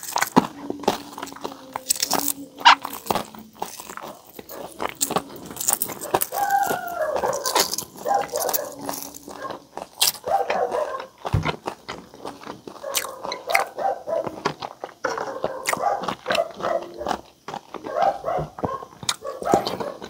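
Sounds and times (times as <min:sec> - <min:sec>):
egg shell crackling as peeled: 0:00.0 - 0:11.2
chewing: 0:00.0 - 0:20.0
dog whining: 0:00.4 - 0:03.3, 0:04.0 - 0:09.6.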